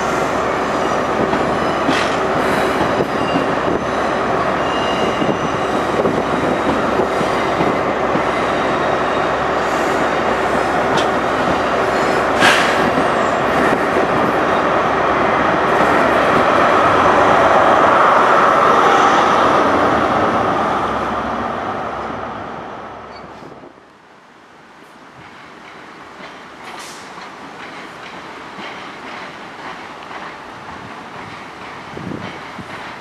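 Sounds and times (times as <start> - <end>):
train coaches rumbling over rails: 0.0 - 23.9, 24.5 - 33.0
diesel locomotive passing: 0.0 - 24.0
sharp rail clack: 12.3 - 13.1.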